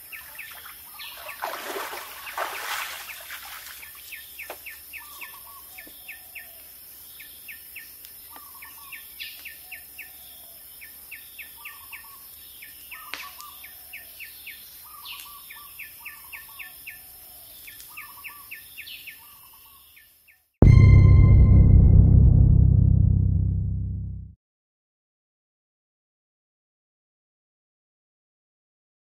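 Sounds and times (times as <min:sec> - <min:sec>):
birds chirping: 0:00.0 - 0:20.2.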